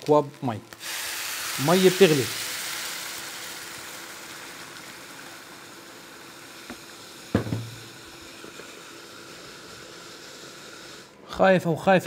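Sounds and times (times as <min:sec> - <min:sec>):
boiling water pouring into a pot: 0:00.0 - 0:11.2
sharp knock: 0:07.4 - 0:07.8.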